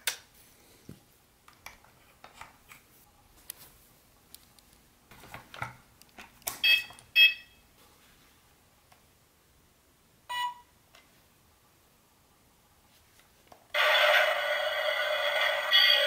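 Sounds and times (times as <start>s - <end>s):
toy train electronic beeps: 13.8s - 16.0s.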